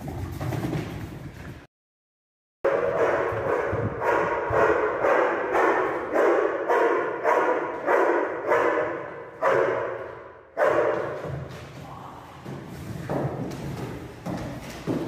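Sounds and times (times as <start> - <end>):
dog barking in echoing room: 2.6 - 11.8.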